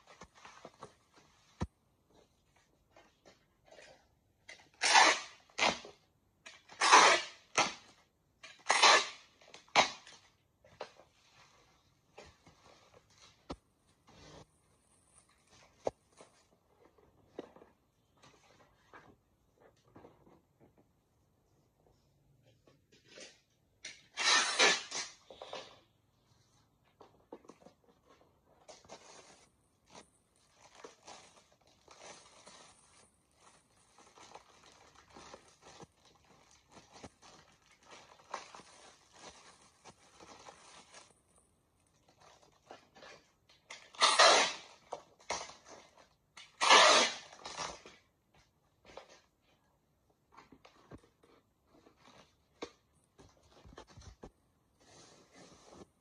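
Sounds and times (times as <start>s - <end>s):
tape tearing on blade: 4.8s - 5.8s, 6.8s - 7.8s, 8.6s - 10.0s, 24.1s - 25.2s, 44.0s - 44.7s, 46.5s - 47.7s
packing tape pulled off: 24.1s - 25.2s, 43.8s - 45.5s, 46.4s - 47.8s
plastic wrap crinkling: 28.9s - 42.8s.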